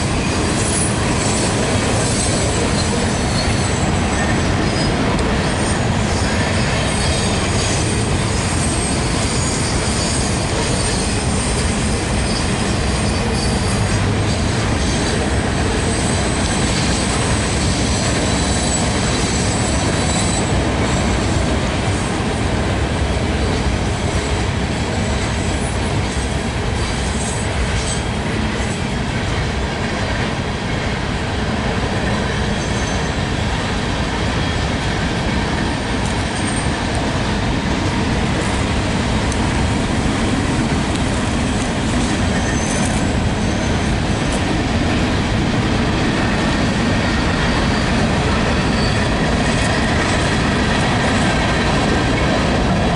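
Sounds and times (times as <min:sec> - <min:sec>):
freight train wheels on rails: 0:00.0 - 0:52.9
high wheel squeal: 0:00.2 - 0:15.1, 0:15.8 - 0:21.3, 0:32.4 - 0:33.2, 0:42.0 - 0:44.4, 0:46.0 - 0:52.0.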